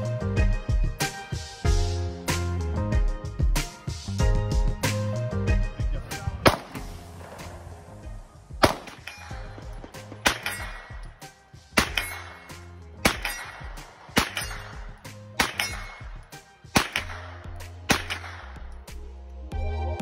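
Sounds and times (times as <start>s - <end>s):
background music: 0.0s - 20.0s
gunshots: 6.4s - 7.5s, 8.6s - 18.7s.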